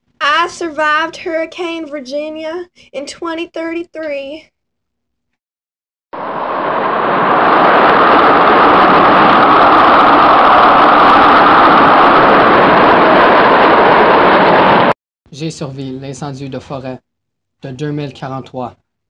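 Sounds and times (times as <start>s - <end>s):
loud rushing wind: 6.2s - 15.0s.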